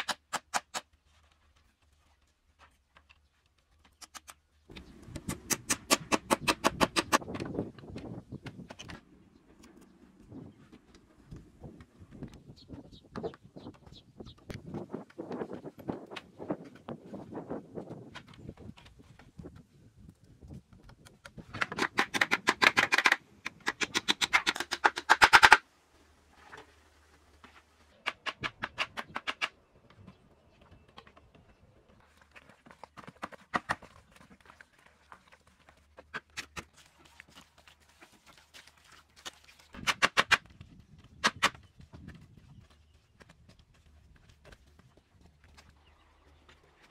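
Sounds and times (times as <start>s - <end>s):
bamboo pieces tapping and clicking: 20.5s - 25.6s, 27.9s - 29.6s.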